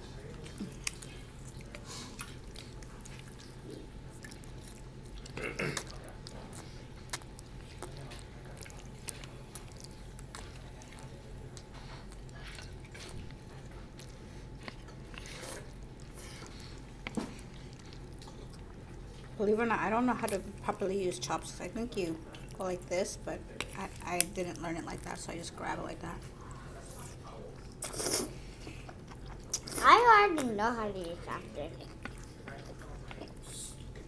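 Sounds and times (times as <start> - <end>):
low room hum: 0.0 - 34.0
chewing and slurping noodles: 0.2 - 19.4, 31.2 - 34.0.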